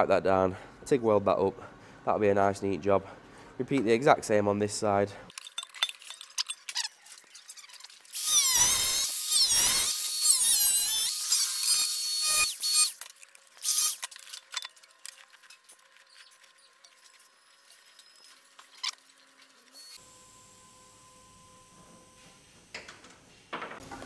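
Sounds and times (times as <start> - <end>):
power tool whining cutting metal: 8.1 - 13.0.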